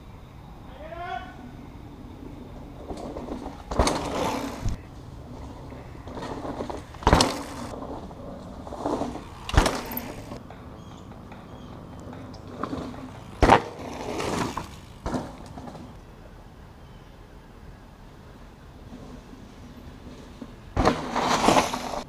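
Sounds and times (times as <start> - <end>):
bike tyres rolling through leaves: 0.7 - 16.3, 18.1 - 22.0
bike clattering over bumps: 2.2 - 16.0, 18.8 - 22.0.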